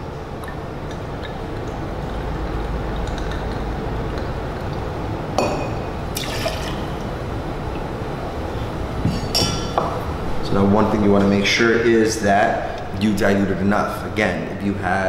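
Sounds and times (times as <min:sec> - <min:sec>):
liquid pouring into metal jigger: 0:06.1 - 0:07.1.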